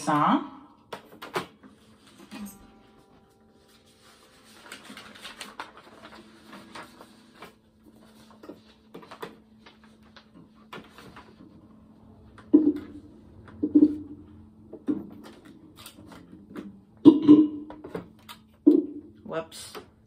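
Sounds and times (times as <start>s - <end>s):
paper rustling and shuffling: 0.9s - 12.3s, 14.9s - 16.8s.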